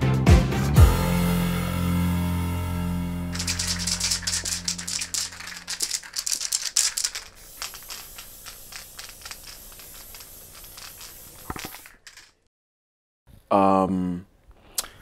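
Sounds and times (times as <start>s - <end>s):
percussion rattle shaking: 3.3s - 12.4s.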